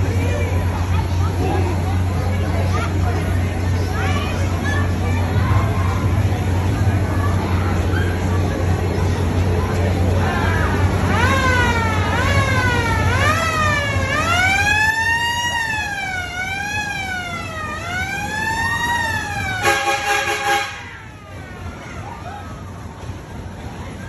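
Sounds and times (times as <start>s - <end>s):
siren wailing: 11.0s - 20.1s
steady horn blast: 19.4s - 20.9s.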